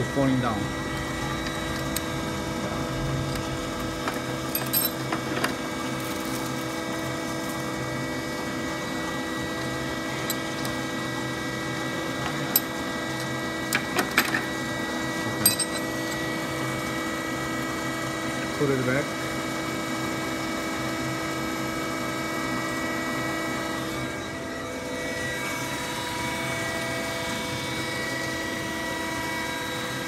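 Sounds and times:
machinery humming: 0.0 - 19.1.

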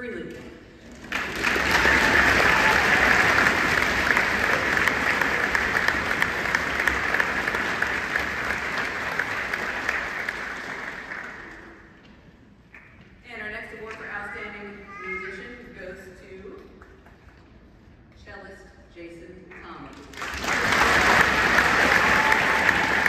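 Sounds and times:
audience applauding: 0.9 - 11.9, 20.1 - 23.0.

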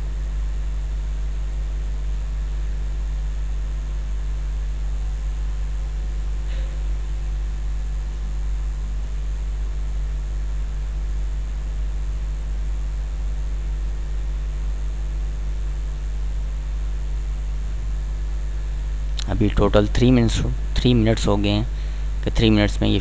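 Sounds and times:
low electrical hum: 0.0 - 23.0
microphone hiss: 0.0 - 23.0.

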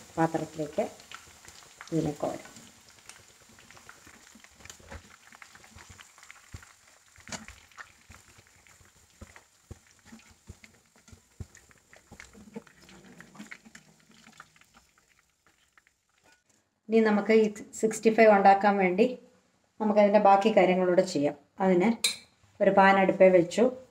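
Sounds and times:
chicken sizzling in oil: 0.0 - 16.5.

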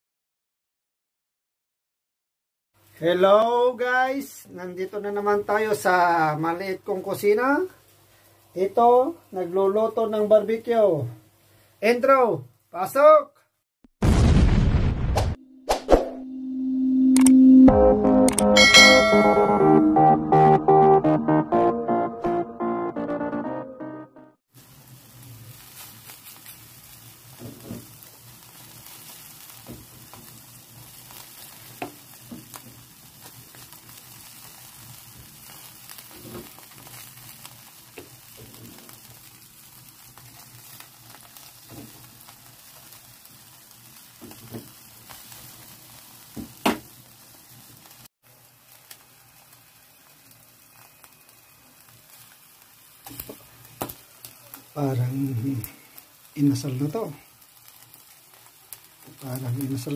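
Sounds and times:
chicken sizzling on grill: 2.8 - 12.9, 24.5 - 59.9
sharp pops and crackles: 25.7 - 43.4, 46.3 - 47.1, 50.2 - 54.8.

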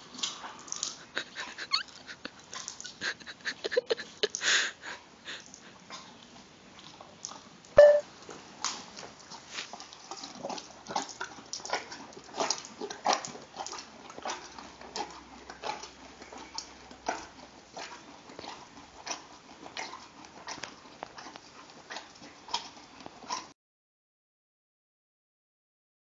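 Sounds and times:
horse chewing juicy crunching: 8.2 - 23.5.

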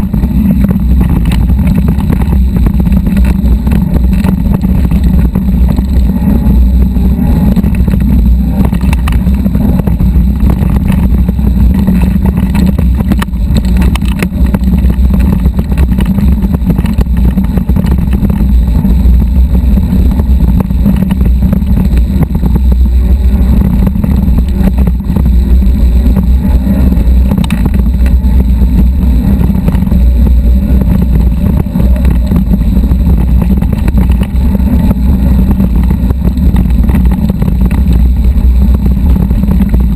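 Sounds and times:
low rumble of bike riding: 0.0 - 39.9.

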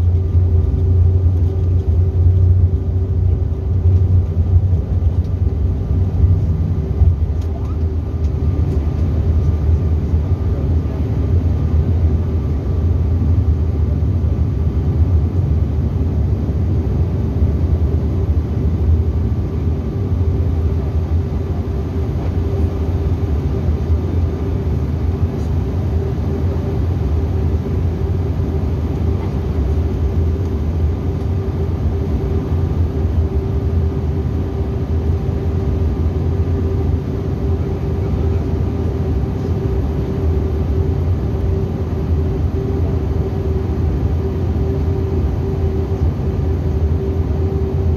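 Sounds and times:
jet engines rumbling in cabin: 0.0 - 47.9.

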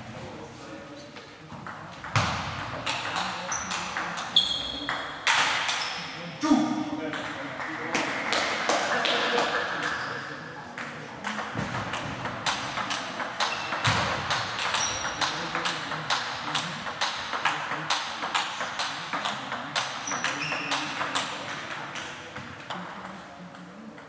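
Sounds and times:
table tennis balls clicking: 1.6 - 5.9, 10.8 - 24.0.

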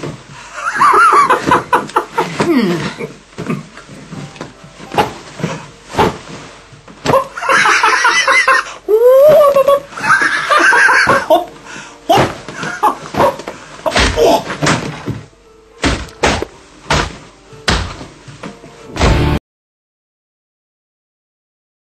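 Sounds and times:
sharp knocks and thumps: 12.1 - 18.2.

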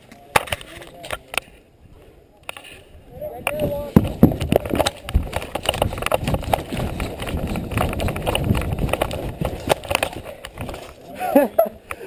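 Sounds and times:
sharp clicks and knocks: 3.4 - 11.0
gear rattling: 3.5 - 11.0.

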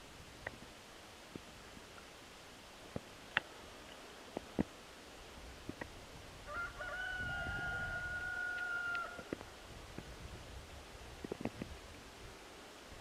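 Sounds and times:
faint clicks: 2.9 - 4.8, 8.5 - 10.1
rooster crowing: 6.4 - 9.3.

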